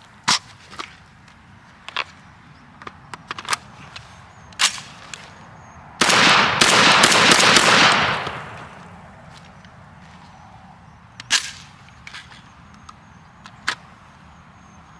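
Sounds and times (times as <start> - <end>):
shotgun shots with echo: 6.0 - 8.8
sharp gunshot cracks: 6.0 - 8.9.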